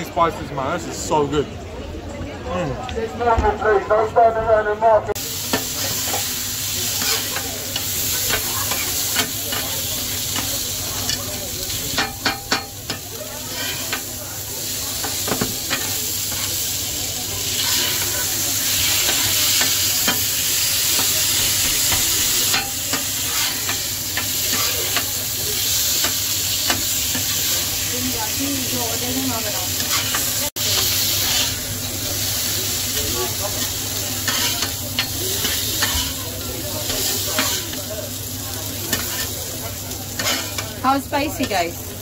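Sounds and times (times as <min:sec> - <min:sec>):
meat sizzling on a griddle: 0:05.2 - 0:42.0
metal spatula scraping and tapping: 0:11.9 - 0:14.1, 0:21.9 - 0:25.1, 0:34.2 - 0:36.2, 0:36.9 - 0:37.8, 0:38.9 - 0:39.3, 0:40.2 - 0:40.7.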